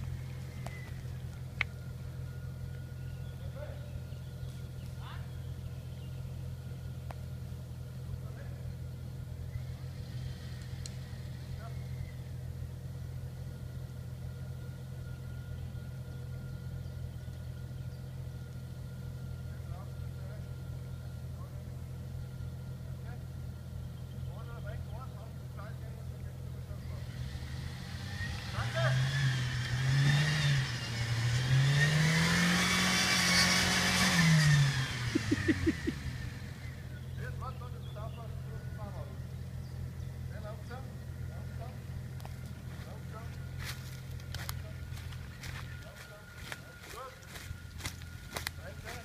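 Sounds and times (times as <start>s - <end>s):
faint steady whine: 0.0s - 28.6s
car engine idling: 0.0s - 49.0s.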